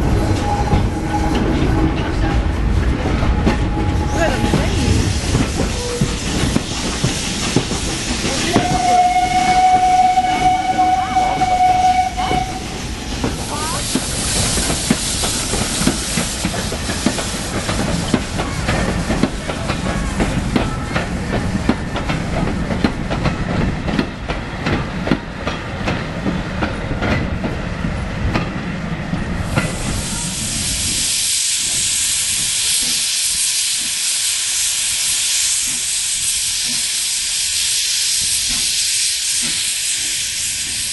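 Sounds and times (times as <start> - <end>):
train wheels clattering: 0.0 - 30.2
steam whistle: 8.4 - 12.8.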